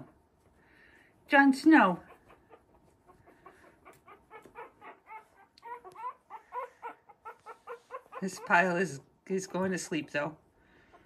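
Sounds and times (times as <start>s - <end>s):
puppies squeaking and whimpering: 1.8s - 10.3s.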